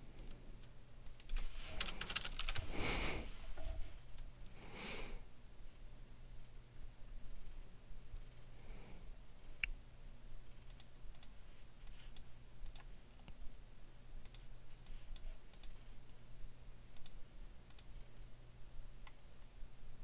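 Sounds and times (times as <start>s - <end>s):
low steady hum: 0.0s - 20.0s
computer mouse clicks: 1.0s - 2.6s, 10.6s - 13.4s, 14.2s - 15.8s, 17.0s - 17.9s.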